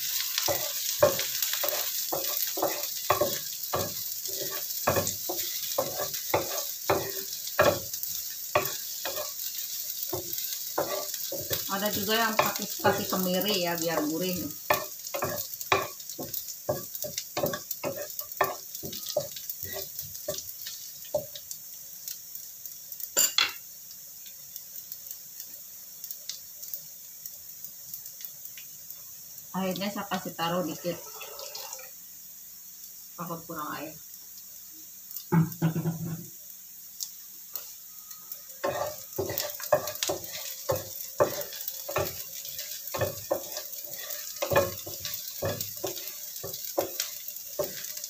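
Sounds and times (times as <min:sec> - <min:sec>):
aromatics sizzling in hot oil: 0:00.0 - 0:48.0
wooden spatula scraping a pan: 0:00.1 - 0:20.5, 0:30.7 - 0:31.9, 0:38.6 - 0:48.0.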